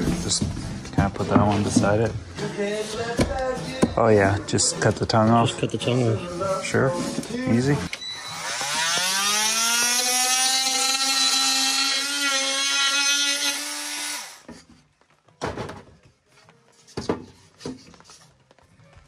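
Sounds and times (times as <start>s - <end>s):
oscillating multi-tool buzzing whine: 7.9s - 14.4s.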